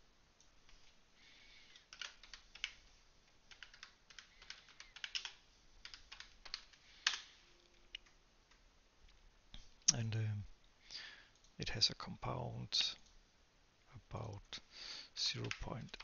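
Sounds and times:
typing on a keyboard: 1.7 - 2.9, 3.5 - 7.3, 15.4 - 16.0.

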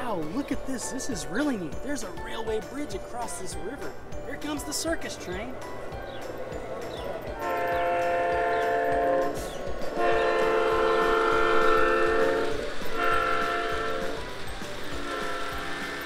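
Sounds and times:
multi-tone train horn blasts: 7.4 - 16.0.

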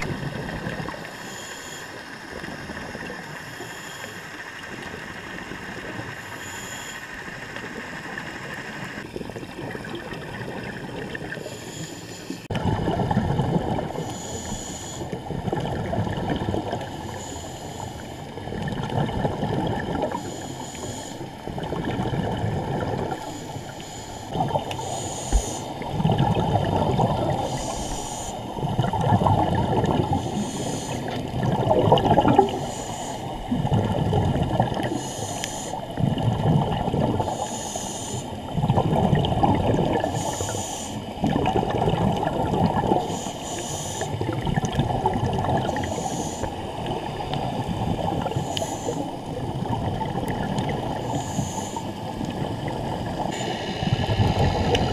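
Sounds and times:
exhaled bubbles rushing: 0.0 - 1.1, 9.0 - 11.5, 12.5 - 14.1, 15.2 - 17.1, 18.4 - 20.2, 21.4 - 23.3, 24.3 - 27.8, 28.4 - 32.8, 33.4 - 35.0, 35.8 - 37.3, 38.5 - 40.4, 41.2 - 43.1, 44.1 - 51.3, 52.1 - 54.9
regulator inhalation hiss: 14.0 - 15.2, 20.2 - 21.3, 23.2 - 25.8, 27.4 - 28.5, 30.1 - 31.2, 32.4 - 33.4, 34.8 - 35.8, 37.2 - 38.4, 40.1 - 41.1, 43.0 - 44.2, 45.7 - 46.6, 48.3 - 49.2, 51.0 - 52.0, 53.3 - 54.9.

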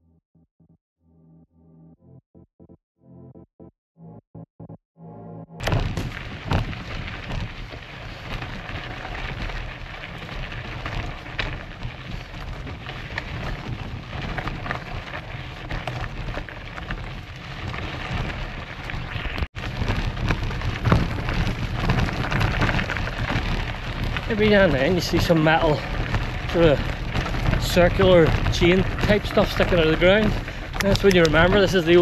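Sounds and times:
bike knocks and rattles: 5.6 - 32.0
bike tyres crackling on gravel: 5.6 - 32.0.

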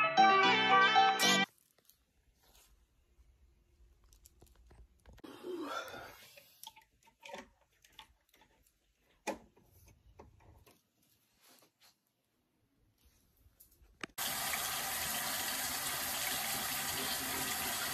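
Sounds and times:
bedding rustling: 1.5 - 4.0.

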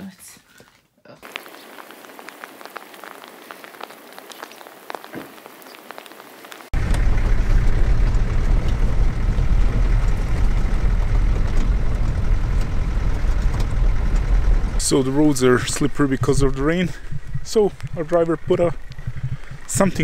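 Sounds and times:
raindrops pattering on wet ground: 1.2 - 20.0
van engine rumble and road noise: 6.7 - 20.0.

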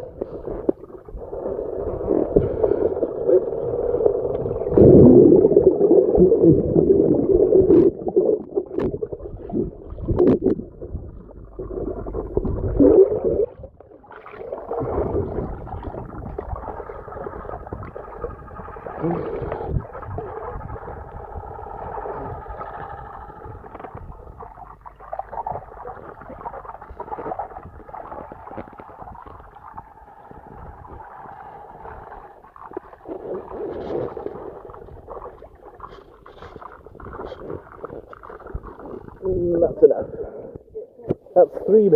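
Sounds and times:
muffled underwater water noise: 0.0 - 41.9
faint steady whine: 14.7 - 35.6.

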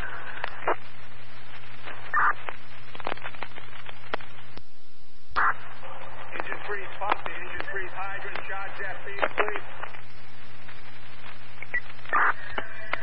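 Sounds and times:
low hum: 0.0 - 13.0
radio chirp: 0.0 - 13.0
radio static hiss: 0.0 - 13.0
scattered clicks: 0.3 - 0.8, 1.6 - 4.7, 6.3 - 13.0.

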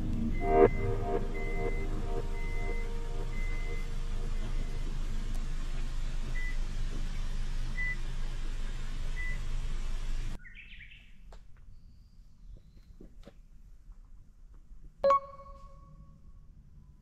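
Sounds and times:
low rumbling noise: 0.0 - 10.4
short electronic beep: 0.3 - 4.9, 15.0 - 16.0
bird chirp: 10.4 - 13.0.

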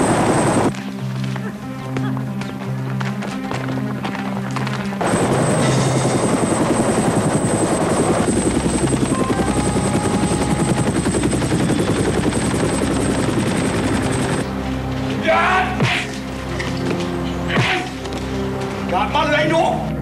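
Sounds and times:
helicopter rotor blades chopping: 0.0 - 0.7, 5.0 - 14.5.

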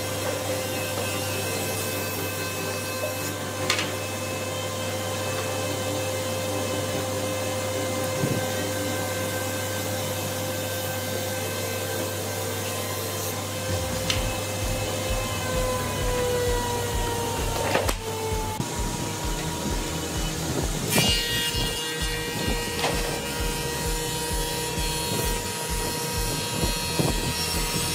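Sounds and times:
jointer running: 0.0 - 27.9.

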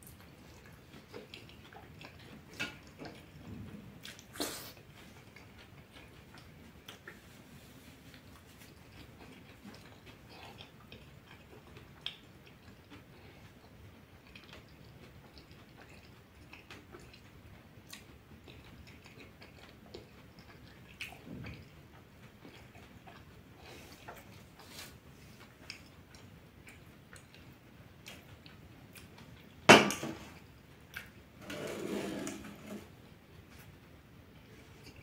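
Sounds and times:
chewing: 0.0 - 29.6, 30.3 - 31.2
rustling: 7.0 - 9.1.

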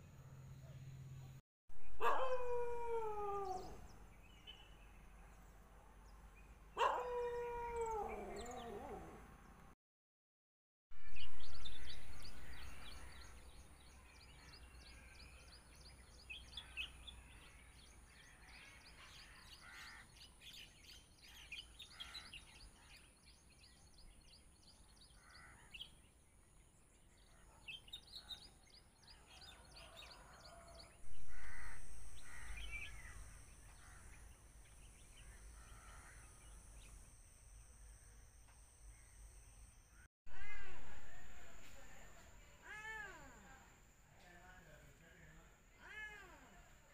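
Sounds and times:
crows cawing: 25.2 - 25.7, 31.1 - 34.2
bird chirps: 27.1 - 39.6.

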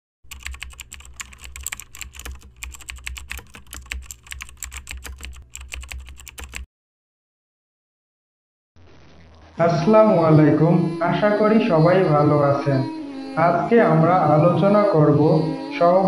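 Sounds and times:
keyboard typing clicks: 0.3 - 6.7.

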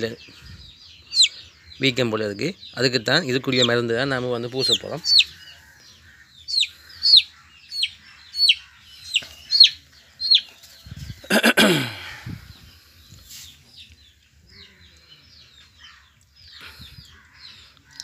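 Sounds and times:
chick peeping: 0.0 - 11.2.

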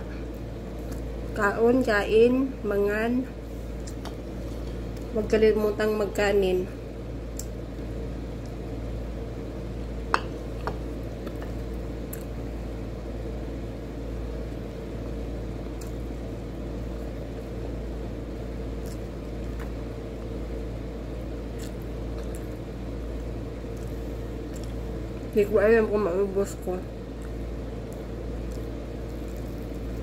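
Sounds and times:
steady low hum: 0.0 - 30.0
eating by hand: 15.6 - 16.2, 18.5 - 25.3, 27.0 - 30.0.

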